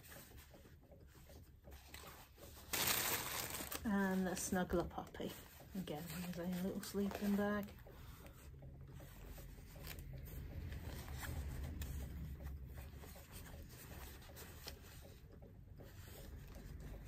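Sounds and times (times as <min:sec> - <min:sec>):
small crackles: 0:00.0 - 0:11.8
plush toys and packaging rustling: 0:01.8 - 0:12.0.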